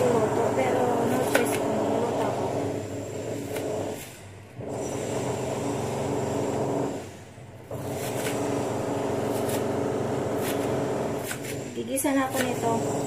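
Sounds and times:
knife chopping on plastic board: 0.8 - 2.3, 3.4 - 4.0, 7.8 - 13.0.

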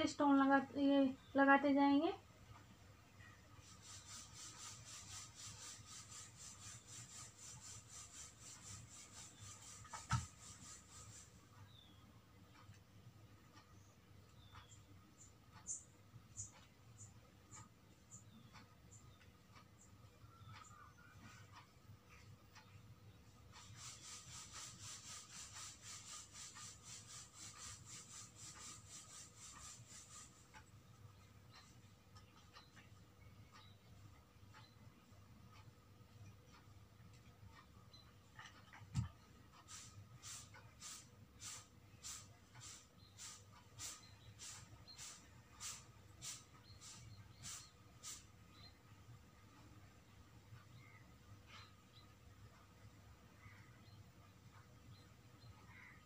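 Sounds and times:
nozzle rubbing on cloth: 3.6 - 11.5, 23.5 - 30.8, 38.4 - 48.8.

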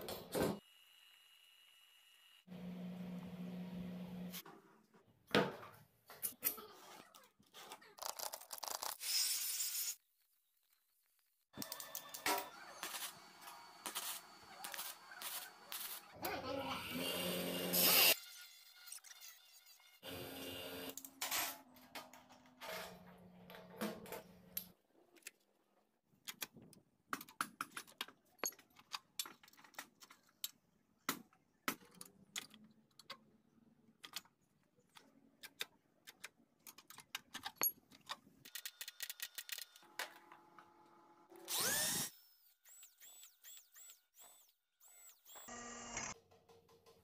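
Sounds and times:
electric drill boring steel: 16.8 - 18.2, 41.4 - 46.2
metal parts clinking and knocking: 27.7 - 30.6, 36.7 - 39.7.

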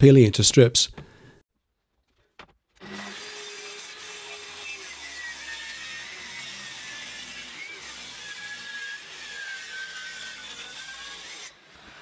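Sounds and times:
circular saw cutting wood: 2.8 - 12.0.

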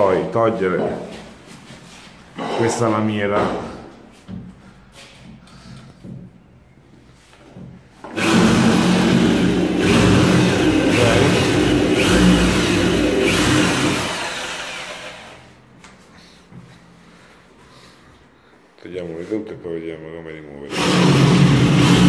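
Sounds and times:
electric drill drilling metal: 8.1 - 15.4, 20.7 - 22.0.

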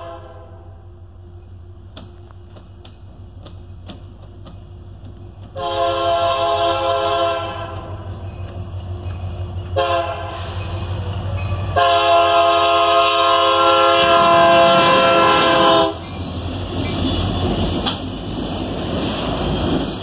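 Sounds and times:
locomotive air horn: 0.0 - 1.0, 5.5 - 8.0, 9.8 - 16.1
train passing close by: 0.0 - 20.0.

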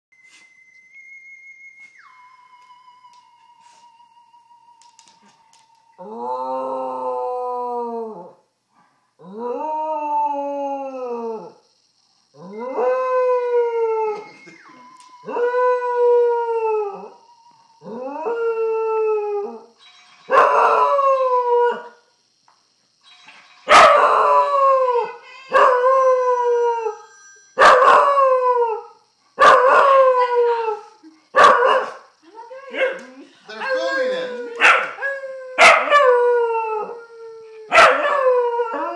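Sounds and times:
dog howling: 2.0 - 8.4, 33.6 - 38.9.

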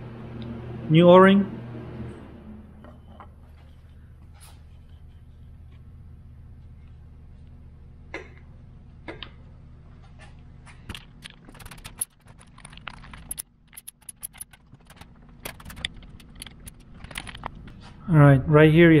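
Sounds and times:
wrench metallic clicks: 10.9 - 17.5.

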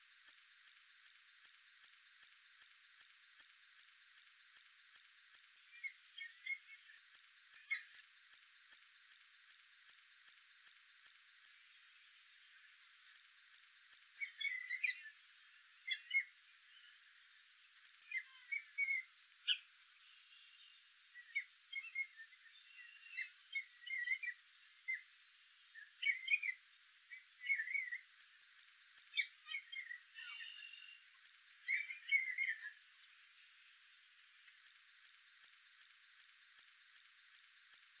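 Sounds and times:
catbird singing: 5.7 - 8.0, 14.2 - 15.2, 15.8 - 17.0, 18.0 - 25.1, 25.7 - 28.1, 29.1 - 32.8.

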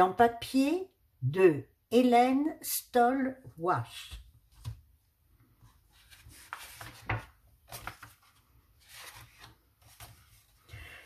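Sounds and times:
book pages turning: 4.4 - 10.8.

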